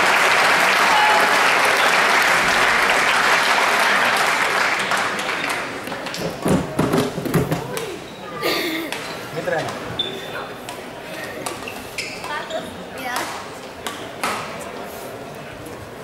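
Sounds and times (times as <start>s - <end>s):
spectators applauding: 0.0s - 5.8s.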